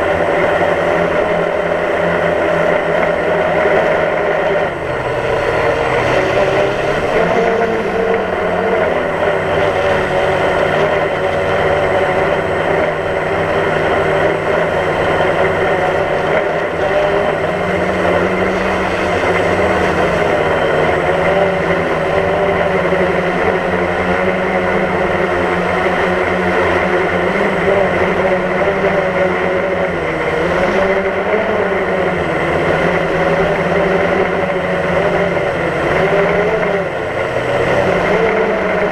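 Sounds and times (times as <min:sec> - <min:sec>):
drone propellers whirring: 0:00.0 - 0:38.9.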